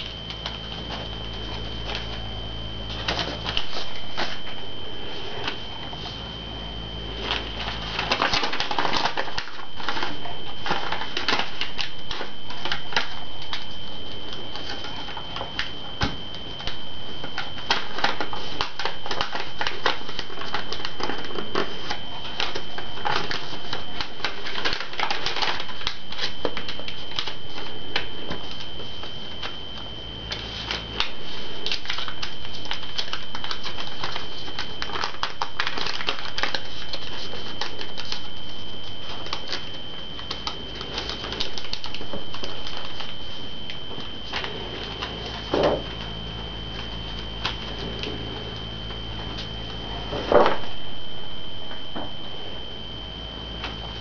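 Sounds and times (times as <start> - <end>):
paper folding and crackling: 0.0 - 50.8
high-pitched whine: 0.0 - 54.0.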